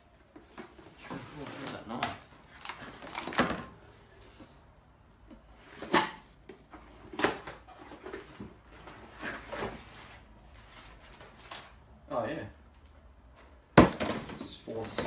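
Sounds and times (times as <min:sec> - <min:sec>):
cardboard boxes knocking and rustling: 0:13.7 - 0:15.0.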